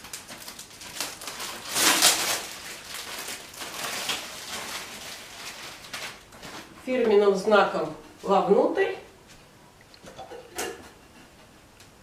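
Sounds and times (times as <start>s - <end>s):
plastic film rustling and crackling: 0.0s - 7.4s.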